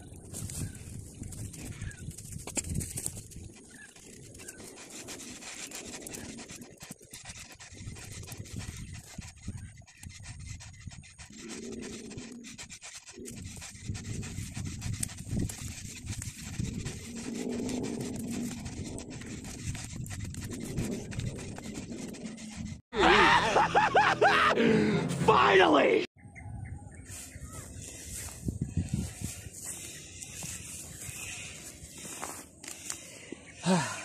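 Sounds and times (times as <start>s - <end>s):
scraping at soil: 0.0s - 22.8s, 27.1s - 34.0s
heavy panting breaths: 32.1s - 34.0s.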